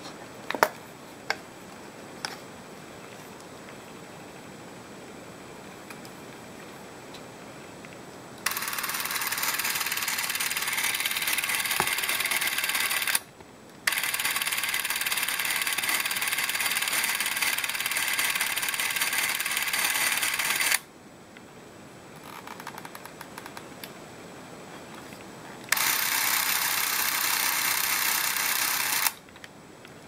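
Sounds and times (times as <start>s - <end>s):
cine camera motor running: 8.4s - 13.3s, 13.9s - 20.8s, 25.7s - 29.2s.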